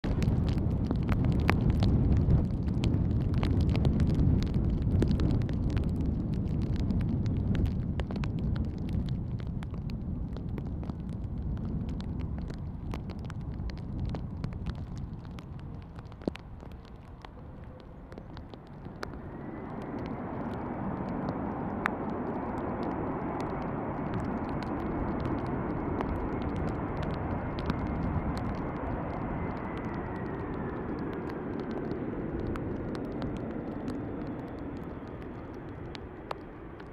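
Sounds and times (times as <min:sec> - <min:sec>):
jet engines low rumble: 0:00.0 - 0:36.9
jet engines reverse thrust whine: 0:11.5 - 0:36.9.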